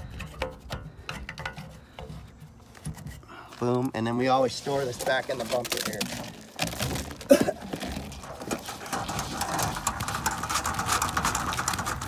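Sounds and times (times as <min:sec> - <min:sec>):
plastic hose scraping in tube: 0:04.3 - 0:12.0.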